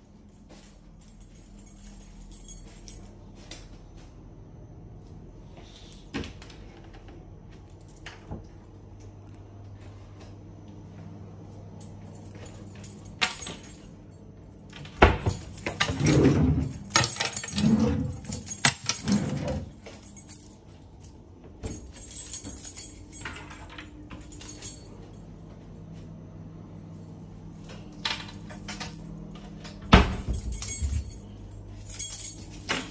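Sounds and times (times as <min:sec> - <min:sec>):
drawers sliding: 0:15.8 - 0:19.7.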